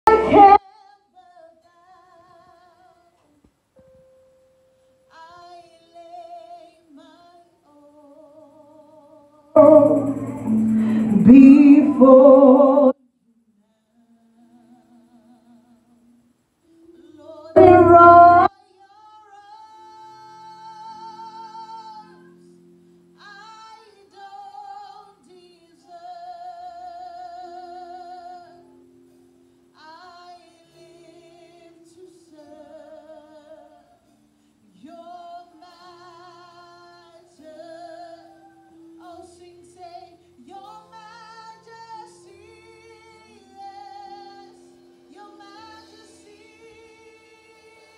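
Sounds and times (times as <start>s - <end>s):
soft keyboard chords: 0.0s - 0.6s, 9.6s - 12.9s, 16.8s - 18.5s
woman singing worship song: 0.0s - 3.3s, 5.1s - 13.0s, 17.0s - 22.6s, 23.2s - 28.7s, 29.8s - 34.1s, 34.7s - 47.9s.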